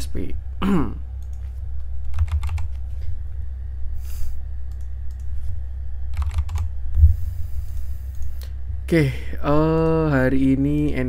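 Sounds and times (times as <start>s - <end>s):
low electrical hum: 0.0s - 11.0s
keyboard keys clicking: 1.2s - 2.8s, 6.1s - 6.7s.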